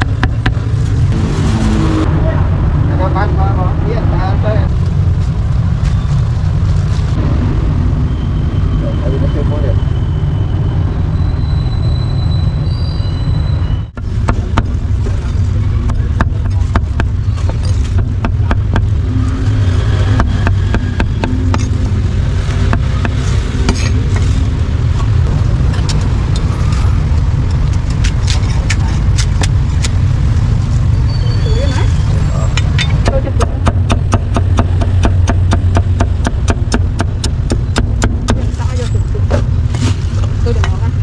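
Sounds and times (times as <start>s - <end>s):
street traffic rumble: 0.0s - 41.0s
cleaver chopping on wooden board: 33.0s - 38.4s.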